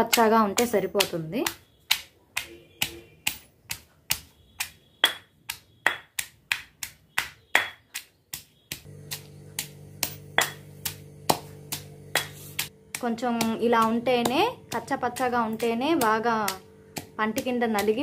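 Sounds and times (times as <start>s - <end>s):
stone pestle pounding in mortar: 0.0s - 18.0s
low hum: 8.9s - 18.0s.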